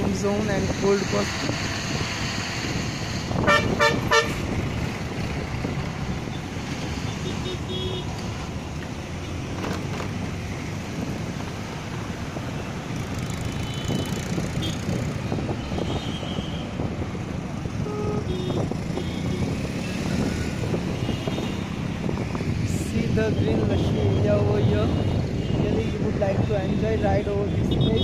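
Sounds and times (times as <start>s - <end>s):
road and traffic noise: 0.0s - 28.0s
vehicle horn beeps: 17.8s - 19.3s.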